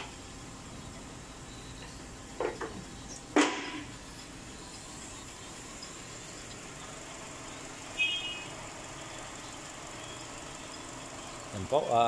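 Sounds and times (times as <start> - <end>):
car engine idling: 3.8 - 12.0.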